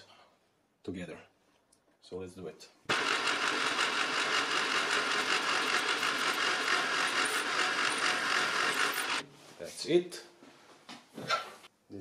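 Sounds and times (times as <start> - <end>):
drill cutting metal: 2.9 - 9.2
spindle motor running: 2.9 - 9.2.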